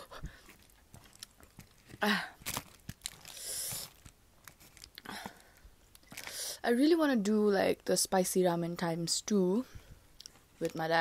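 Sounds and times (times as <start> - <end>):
chewing noodles: 0.3 - 1.9.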